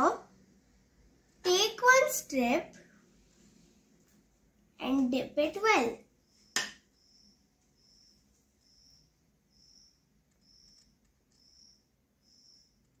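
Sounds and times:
cricket chirping: 6.2 - 13.0.

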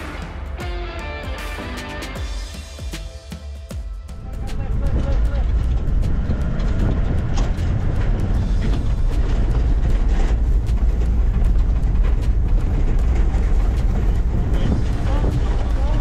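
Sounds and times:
vehicle engine and tyre rumble: 4.1 - 16.0
vehicle body rattling and knocking: 4.2 - 16.0.

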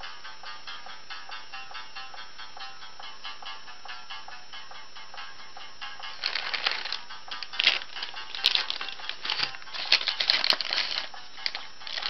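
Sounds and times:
plastic bag crinkling: 6.2 - 12.0.

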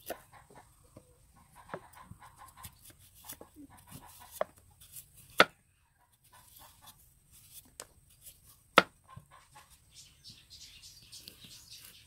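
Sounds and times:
knife chopping on wooden board: 5.3 - 5.6.

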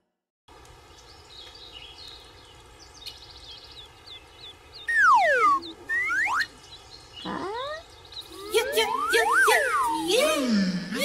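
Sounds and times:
small birds chirping: 0.5 - 11.0
cartoon falling whistle: 4.9 - 6.5, 8.4 - 10.3
cartoon rising whistle: 4.9 - 6.5, 7.4 - 10.3.

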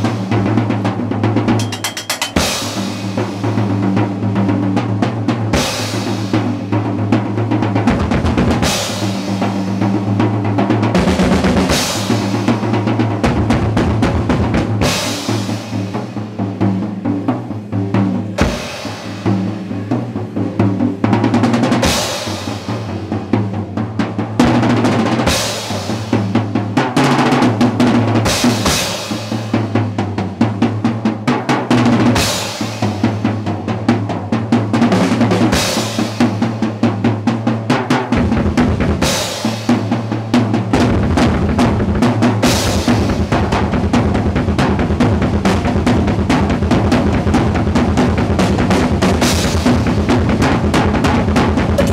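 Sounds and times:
drum rolls on snare and toms: 0.0 - 51.9
cymbal crash: 1.6 - 3.8.

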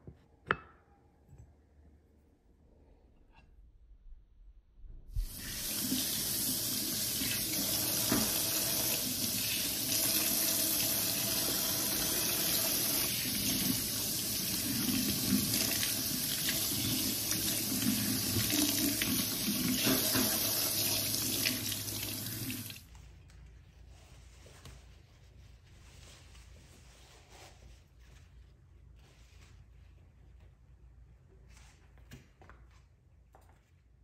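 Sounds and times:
faucet water running into sink: 5.2 - 22.8.

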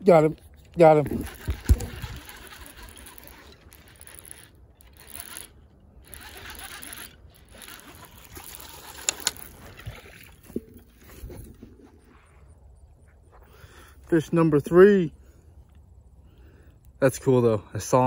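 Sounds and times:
fishing reel being cranked: 0.7 - 10.2
sharp clicks: 1.2 - 9.5.

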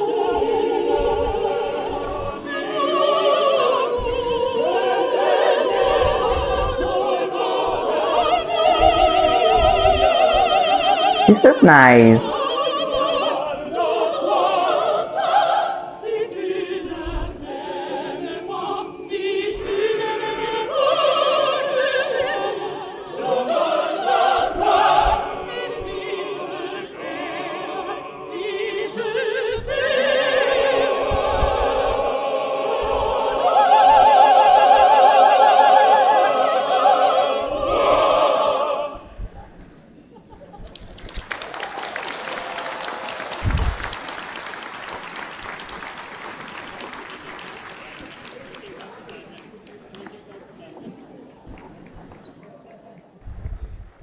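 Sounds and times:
opera choir singing: 0.0 - 39.6.

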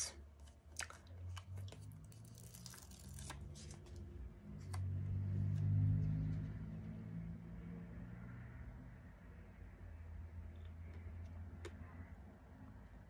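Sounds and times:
sticker strips peeling: 0.8 - 4.0.

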